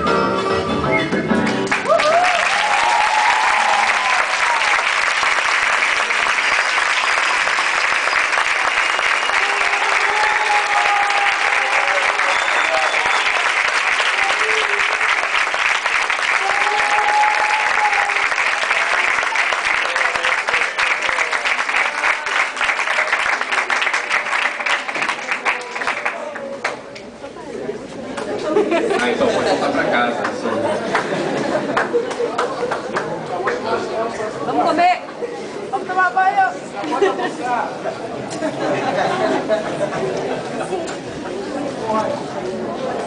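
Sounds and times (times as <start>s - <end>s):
audience applauding: 1.5s - 26.9s, 30.0s - 33.8s.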